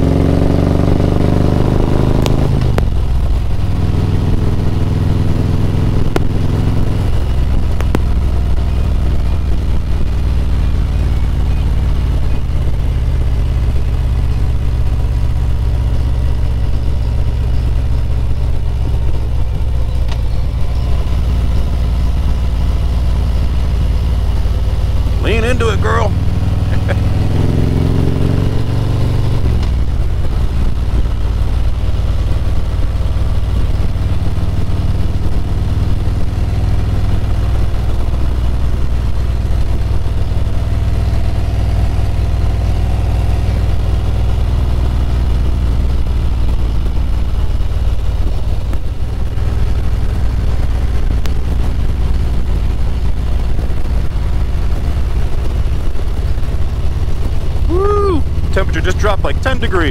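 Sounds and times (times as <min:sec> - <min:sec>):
motorcycle engine cruising: 0:00.0 - 0:59.9
road and wind noise: 0:00.0 - 0:59.9.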